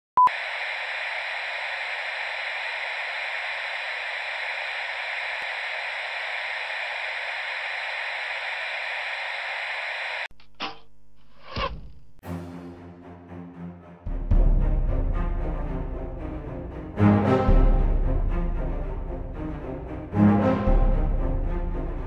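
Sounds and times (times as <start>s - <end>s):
electronic static hiss: 0.2s - 12.2s.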